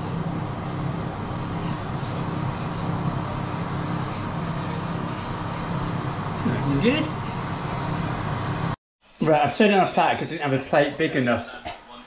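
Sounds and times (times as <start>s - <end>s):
oven fan humming: 0.0s - 8.8s.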